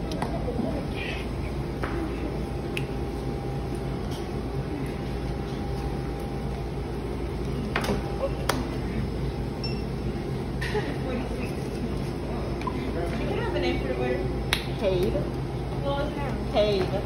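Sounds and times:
faint murmur of voices: 0.0s - 3.0s, 10.2s - 17.0s
equipment and ventilation hum: 0.0s - 17.0s.

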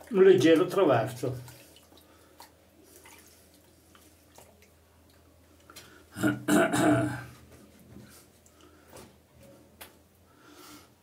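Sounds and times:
man's throaty vocal sound: 6.2s - 7.3s.

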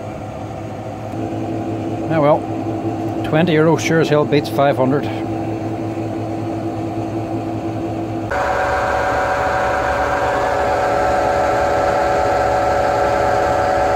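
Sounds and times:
washing machine hum and whine: 0.0s - 13.9s.

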